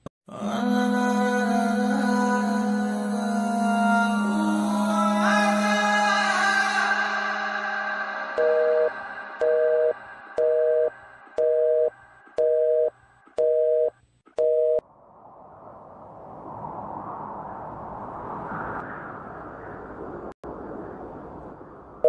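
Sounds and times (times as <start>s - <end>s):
telephone busy signal beeps: 8.4s - 14.8s
rush of noise: 14.8s - 22.0s.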